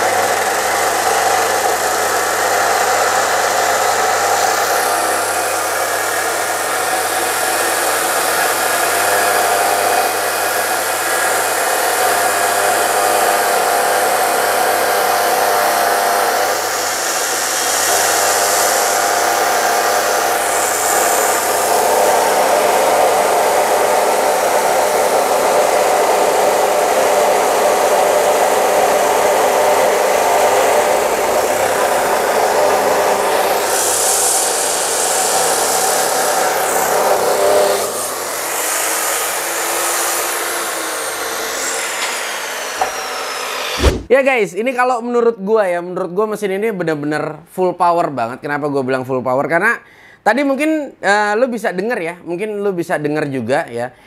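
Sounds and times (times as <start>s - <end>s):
chop saw grinding through steel: 0.0s - 44.1s.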